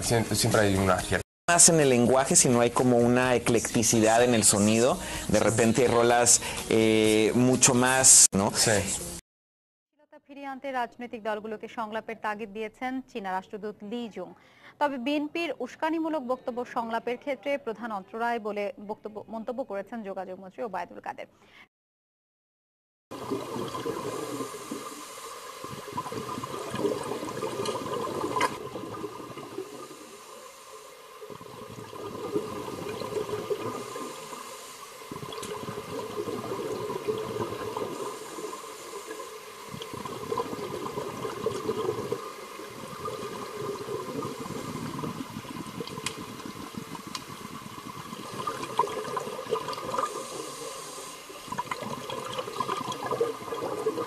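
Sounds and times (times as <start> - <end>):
aquarium water bubbling: 23.1 - 54.0.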